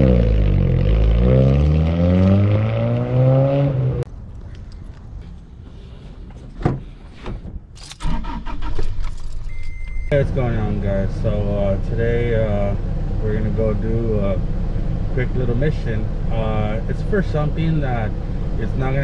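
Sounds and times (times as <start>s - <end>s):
car engine revving: 0.0s - 4.1s.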